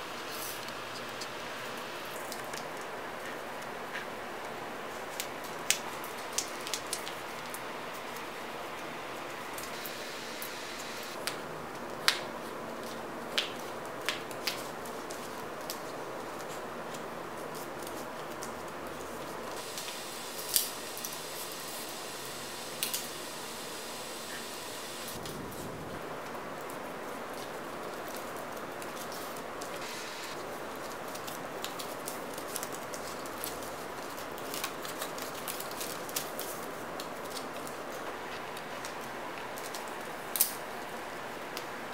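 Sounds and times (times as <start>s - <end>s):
steady hiss: 0.0s - 13.9s, 18.9s - 41.9s
paper crackling and rustling: 26.6s - 40.6s.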